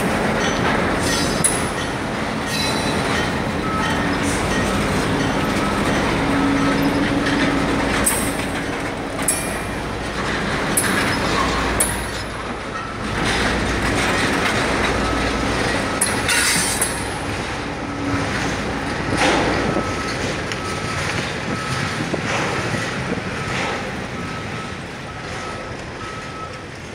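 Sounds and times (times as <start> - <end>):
low rumble of rolling cars: 0.0 - 26.9
wheels clattering over rail joints: 0.0 - 26.9
high wheel squeals: 0.3 - 18.2.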